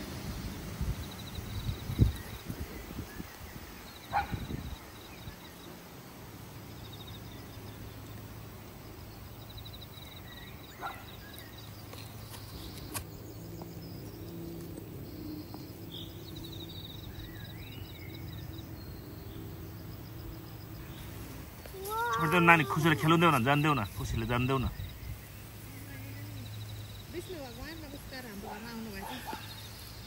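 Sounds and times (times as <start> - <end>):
rustle: 0.0 - 19.0, 20.6 - 30.0.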